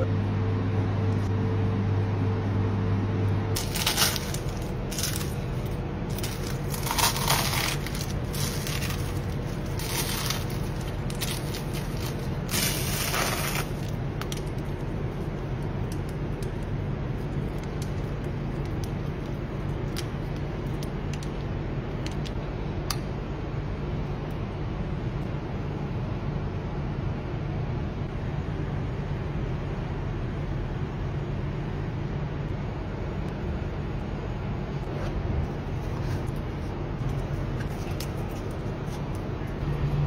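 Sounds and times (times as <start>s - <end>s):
steady low hum: 0.0s - 40.0s
puff pastry crackling and crunching: 3.5s - 22.4s, 35.6s - 39.8s.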